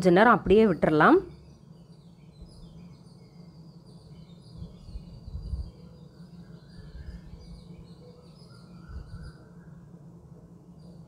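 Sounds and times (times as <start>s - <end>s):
small birds chirping: 0.1s - 9.9s.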